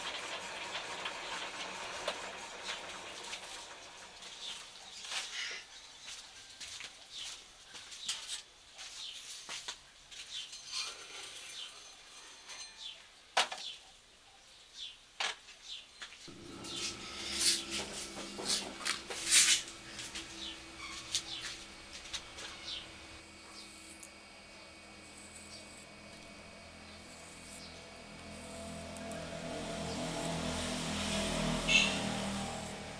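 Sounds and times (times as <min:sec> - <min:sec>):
knocks and scrapes of tools: 0:16.3 - 0:24.1
steady low hum: 0:16.3 - 0:32.9.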